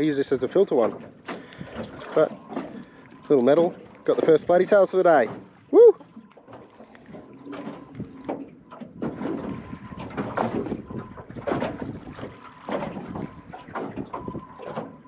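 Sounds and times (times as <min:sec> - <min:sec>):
waves slapping against metal hull: 0:00.0 - 0:15.0
wind buffeting microphone: 0:07.1 - 0:15.0.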